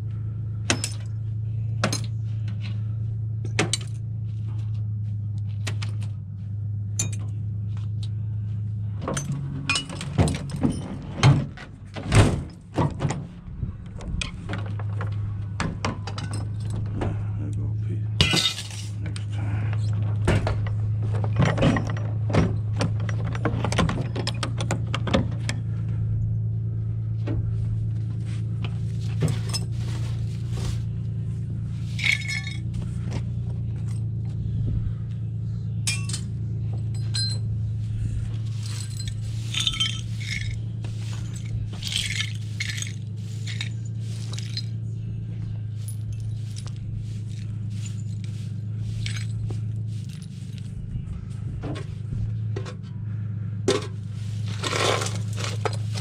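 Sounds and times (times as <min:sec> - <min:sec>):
steady low hum: 0:00.0 - 0:56.0
broken glass clinking: 0:18.2 - 0:19.0, 0:32.0 - 0:32.7, 0:35.9 - 0:37.5, 0:38.6 - 0:40.6, 0:41.3 - 0:44.8
straw broom sweeping: 0:29.0 - 0:31.0, 0:37.8 - 0:44.6, 0:45.7 - 0:50.8, 0:54.0 - 0:56.0.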